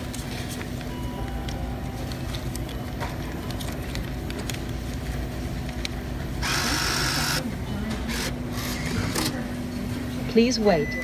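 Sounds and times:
paper rustling: 0:00.0 - 0:05.9
low store hum: 0:00.0 - 0:11.0.

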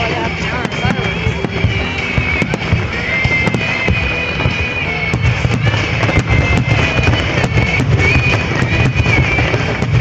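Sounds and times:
fireworks bursting with bangs and crackles: 0:00.0 - 0:10.0
music playing: 0:00.0 - 0:10.0.

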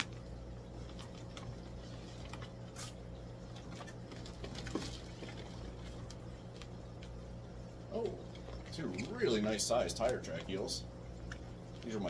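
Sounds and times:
plastic bags rustling and splashing: 0:00.0 - 0:07.1
aquarium pumps humming: 0:00.0 - 0:12.0.

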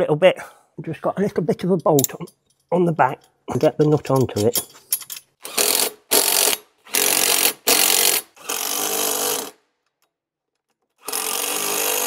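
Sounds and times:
cordless impact driver: 0:05.4 - 0:09.6, 0:11.0 - 0:12.0.

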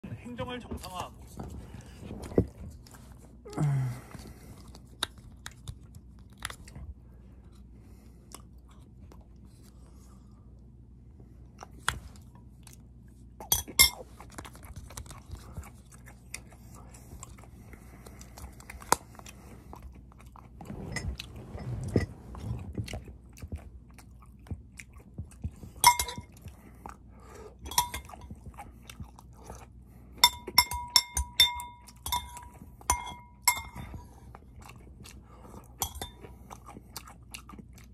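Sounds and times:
metal spoon clinking ceramic bowl: 0:13.5 - 0:14.0, 0:25.8 - 0:26.2, 0:27.7 - 0:28.2, 0:30.2 - 0:33.9, 0:35.8 - 0:36.2.

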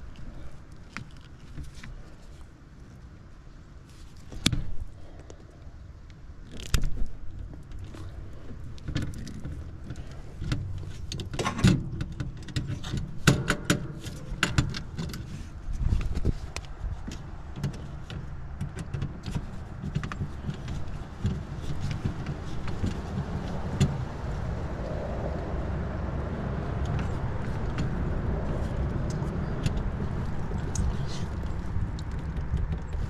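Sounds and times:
wires and connectors clicking: 0:06.4 - 0:08.1, 0:26.7 - 0:33.0
steady low rumble: 0:19.5 - 0:33.0.

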